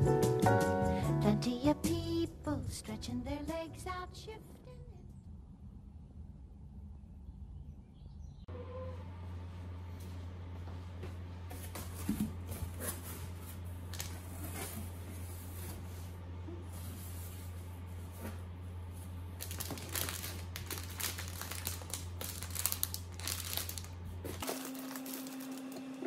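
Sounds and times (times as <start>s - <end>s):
steady low hum: 0.9s - 26.0s
rustling and crinkling of plastic: 11.5s - 26.0s.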